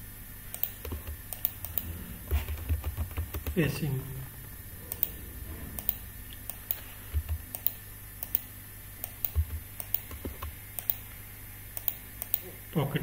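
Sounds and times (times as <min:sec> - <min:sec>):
computer keyboard typing: 0:00.6 - 0:03.7, 0:05.8 - 0:11.0.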